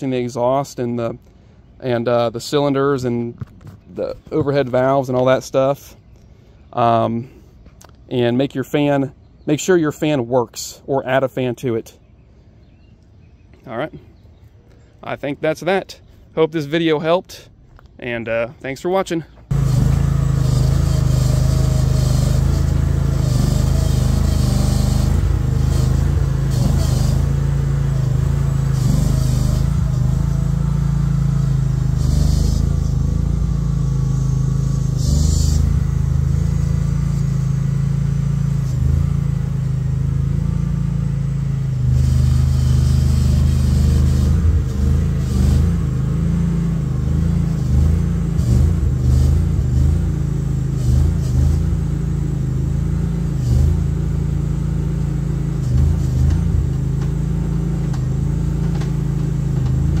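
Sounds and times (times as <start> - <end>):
skid steer engine under load: 19.4 - 60.0.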